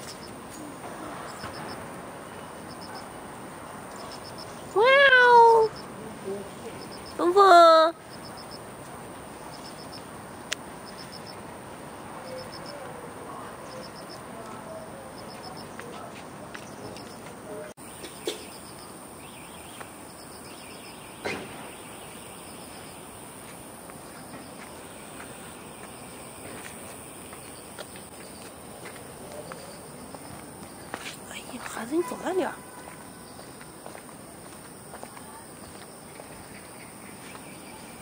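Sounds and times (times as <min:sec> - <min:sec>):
insect chirping in pulses: 0:03.7 - 0:10.1, 0:17.8 - 0:28.5.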